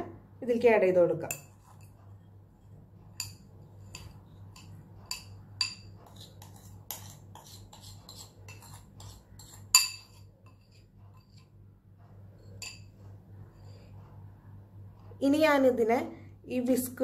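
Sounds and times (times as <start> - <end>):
metal spoon clinking ceramic bowl: 3.1 - 11.5, 12.4 - 13.0.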